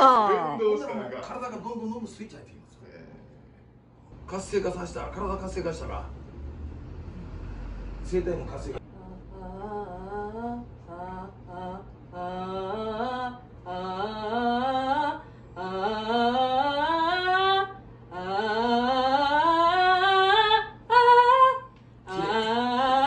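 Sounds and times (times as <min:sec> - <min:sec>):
woman singing pitch glides: 0:08.9 - 0:23.0.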